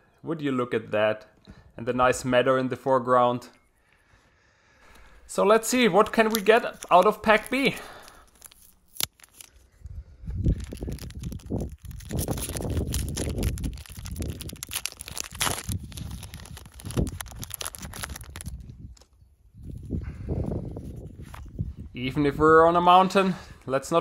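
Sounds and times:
foil wrapper crinkling: 5.5s - 9.7s, 10.4s - 19.1s.

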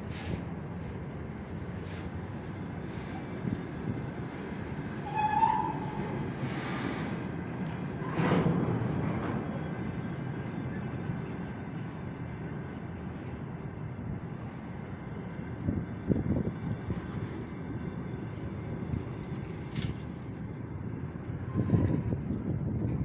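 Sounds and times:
train wheels rumbling on rails: 0.0s - 23.0s
loud train clanks: 3.4s - 17.4s.

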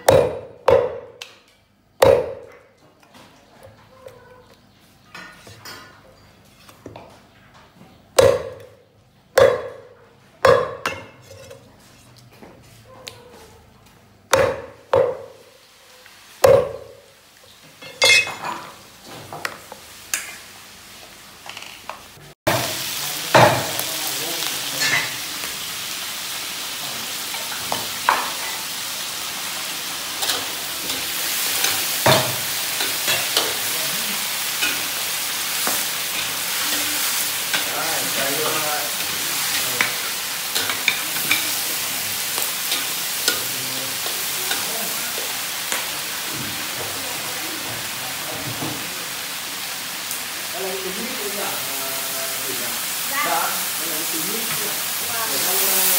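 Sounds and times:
cleaver chopping on wooden block: 0.0s - 1.1s, 2.0s - 2.5s, 8.2s - 8.7s, 9.4s - 9.8s, 14.3s - 15.2s
meat sizzling in a wok: 14.5s - 55.9s
metal spatula clinking on pan: 17.8s - 18.6s.

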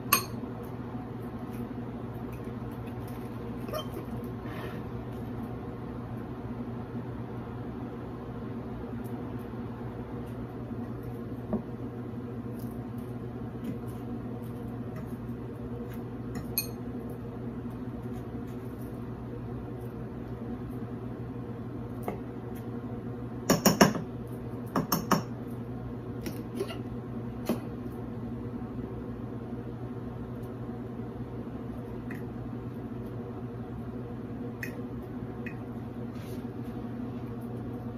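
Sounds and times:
steady low hum: 0.0s - 37.9s
fork clinking against glass bowl: 0.1s - 0.4s, 16.4s - 16.8s.

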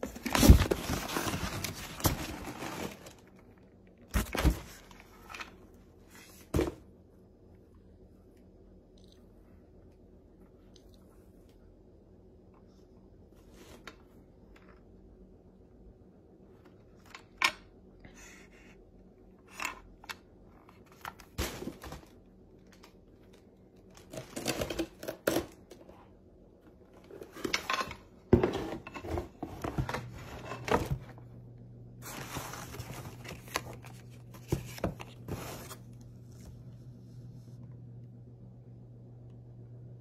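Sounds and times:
packaging rustling: 0.0s - 3.5s.

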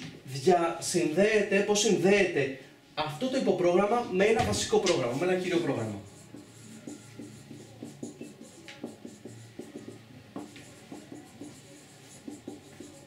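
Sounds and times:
marker squeaking on whiteboard: 4.4s - 13.0s.

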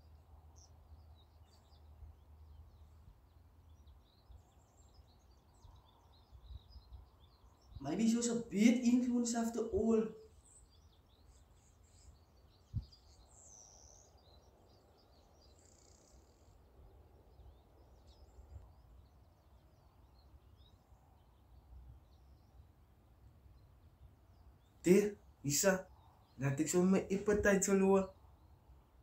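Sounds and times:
small birds chirping: 0.0s - 29.0s.

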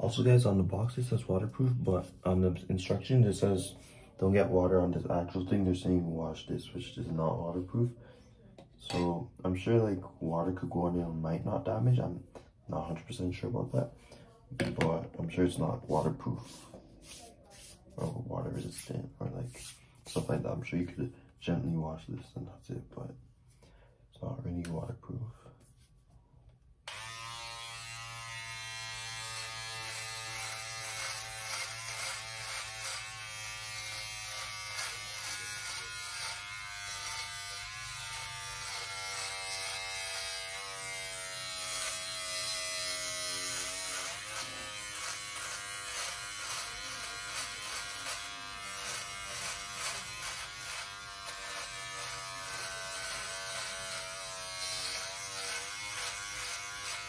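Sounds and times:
electric shaver buzzing: 26.8s - 57.0s.

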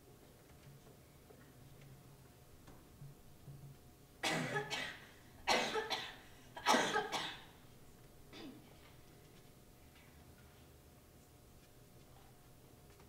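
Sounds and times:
girl coughing: 4.2s - 7.5s, 8.3s - 8.7s.

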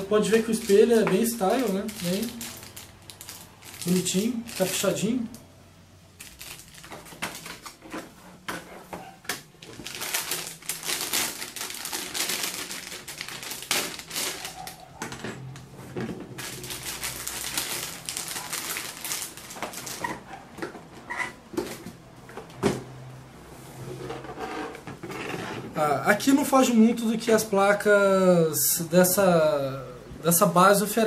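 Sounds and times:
plastic bag crinkling: 0.0s - 5.3s, 6.2s - 8.1s, 9.4s - 20.3s.

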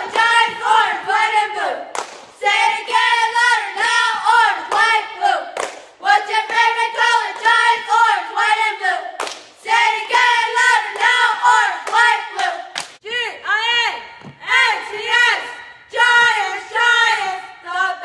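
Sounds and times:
cheerleaders chanting in unison: 0.0s - 18.0s
sharp claps: 1.9s - 2.4s, 5.6s - 6.6s, 9.2s - 9.6s, 11.8s - 13.0s.

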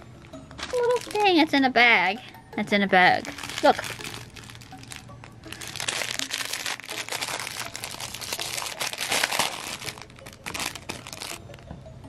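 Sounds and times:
plastic bag crinkling: 0.6s - 1.4s, 3.1s - 11.4s.

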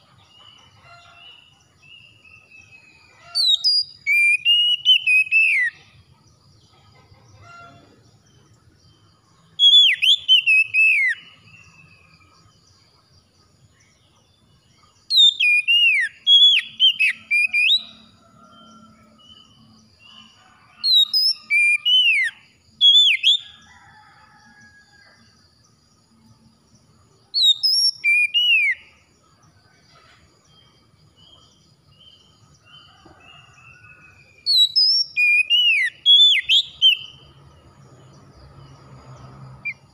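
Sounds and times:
bird singing whistled phrases: 2.3s - 5.8s, 9.6s - 11.3s, 15.1s - 18.0s, 20.9s - 23.4s, 27.4s - 28.9s, 33.8s - 37.2s.

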